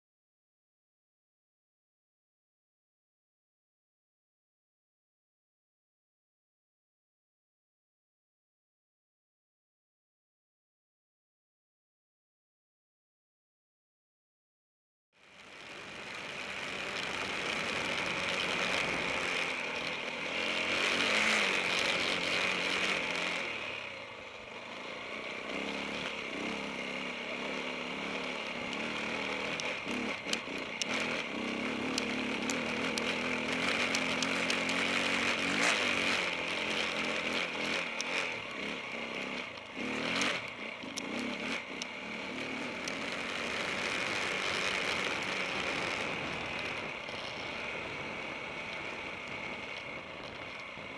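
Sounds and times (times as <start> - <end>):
motorcycle engine revving: 15.2 - 50.9.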